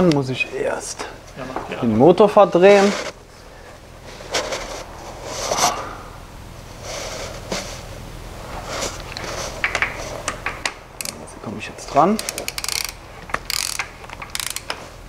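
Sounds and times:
engine crankshaft rasping: 12.1 - 14.9.

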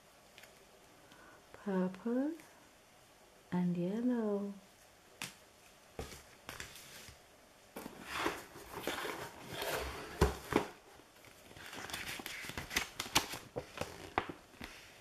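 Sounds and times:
paper rustling and scraping: 7.8 - 14.9
sharp paper crackles: 11.5 - 14.4.

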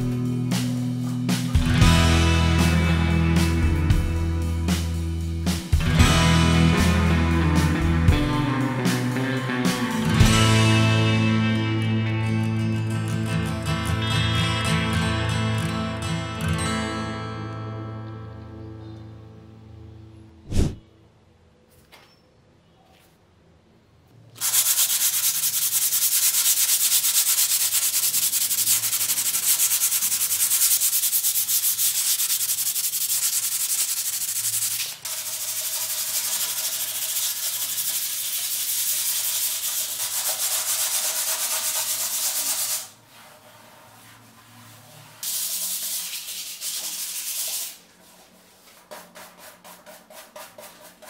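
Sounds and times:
sandpaper rubbing on wall: 20.5 - 20.8, 24.4 - 51.0.

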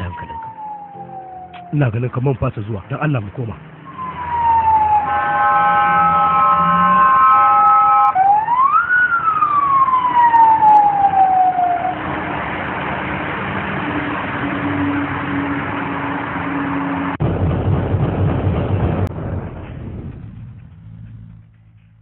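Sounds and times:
siren wailing: 0.0 - 1.9, 3.8 - 17.2
traffic noise: 0.0 - 17.2
low engine rumble: 0.0 - 22.0.

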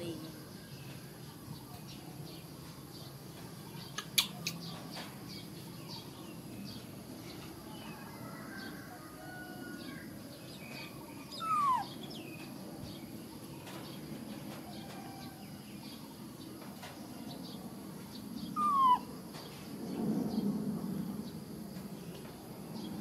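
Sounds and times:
faint chirps: 0.0 - 9.4, 10.4 - 13.9, 18.1 - 19.7.

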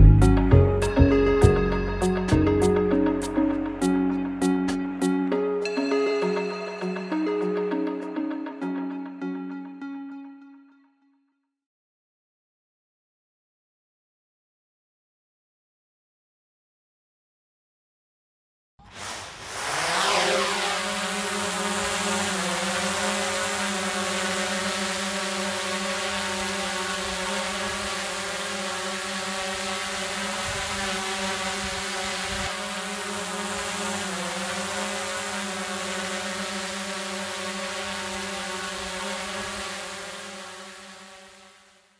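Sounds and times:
layered electronic drone: 0.0 - 10.1, 18.9 - 41.5.

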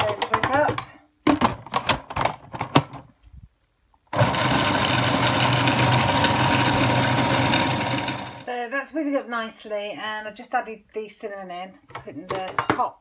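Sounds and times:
food processor motor running: 4.2 - 8.4.

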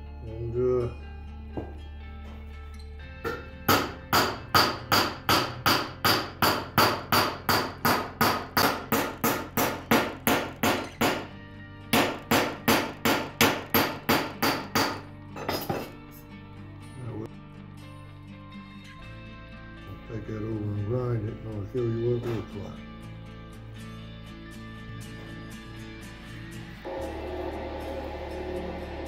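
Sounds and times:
hammer striking metal: 3.2 - 11.3, 11.9 - 16.0.

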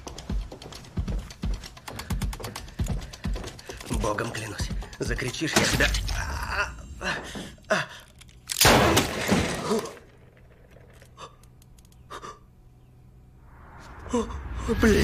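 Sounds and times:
faint clicks: 10.7 - 12.1.

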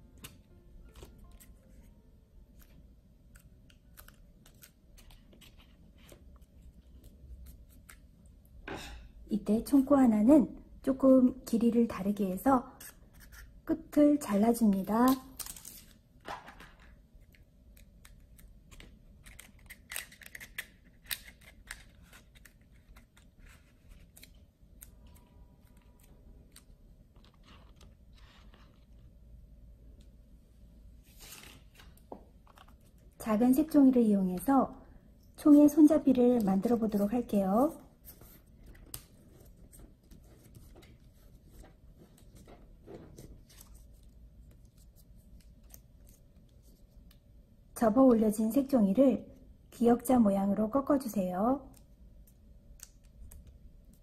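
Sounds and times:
crisp paper clicks and crinkles: 0.2 - 1.9, 2.5 - 8.1, 15.0 - 29.2, 36.3 - 47.2
paper crackling and rustling: 2.5 - 8.0, 15.0 - 16.6, 17.9 - 29.2, 31.1 - 33.0, 36.0 - 47.0.

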